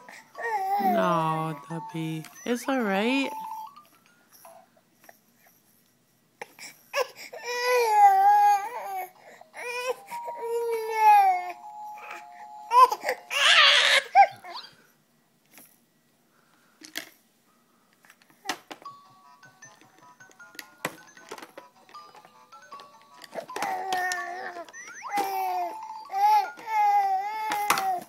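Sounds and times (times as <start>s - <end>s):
baby crying: 0.4s - 1.6s, 7.0s - 14.7s, 23.6s - 28.0s.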